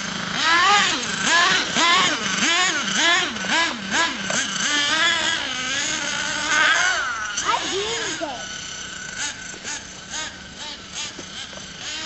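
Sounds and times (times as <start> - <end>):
small nitro engine revving: 0.0 - 12.0.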